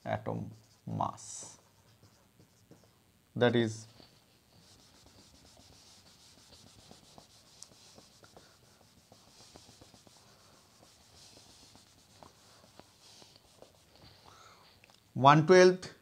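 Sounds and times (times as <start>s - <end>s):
cloth wiping a whiteboard: 0.0s - 14.3s.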